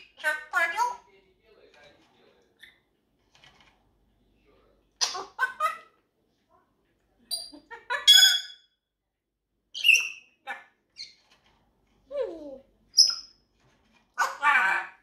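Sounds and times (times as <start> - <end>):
parrot squawking and chattering: 0.0 - 1.1, 5.0 - 6.1, 7.3 - 8.7, 9.7 - 11.4, 12.0 - 15.0.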